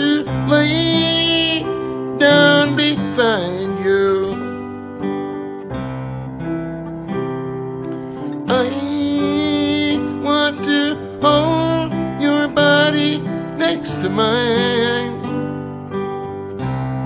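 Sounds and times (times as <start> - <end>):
man singing: 0.0 - 4.6, 8.4 - 15.4
acoustic guitar: 0.0 - 17.0.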